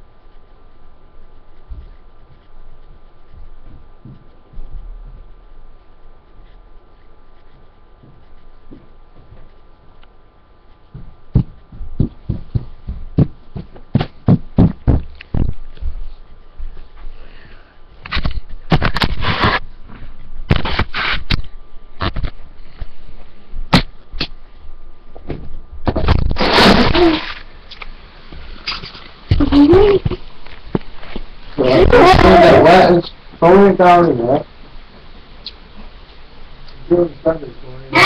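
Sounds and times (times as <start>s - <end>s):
scraping rubs on microphone: 0.0s - 12.7s, 18.1s - 21.4s, 26.2s - 27.4s
microphone handling knocks: 10.9s - 16.0s.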